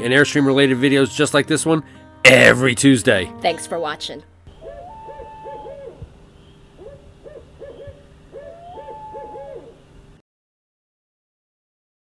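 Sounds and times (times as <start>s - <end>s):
owl hooting: 4.5s - 9.9s.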